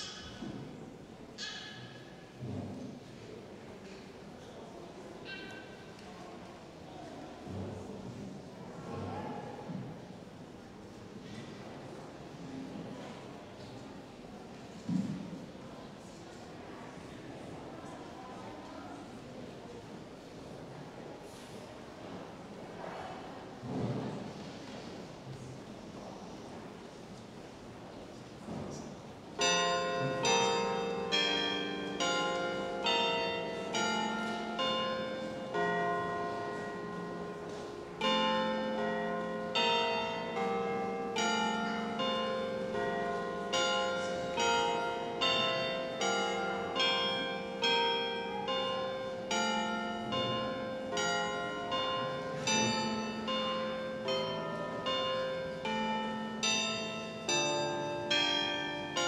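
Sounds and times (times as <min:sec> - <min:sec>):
bells ringing: 0:29.4 - 0:59.0.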